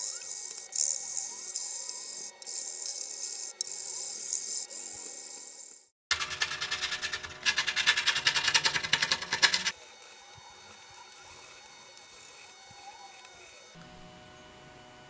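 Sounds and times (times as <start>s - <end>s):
knife scraping wood rapidly: 6.1s - 9.7s.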